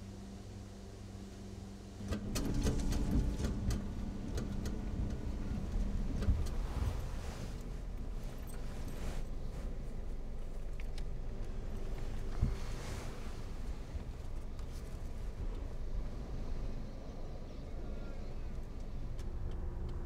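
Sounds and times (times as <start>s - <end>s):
engine and road rumble: 1.7s - 20.0s
rustling: 4.6s - 15.4s.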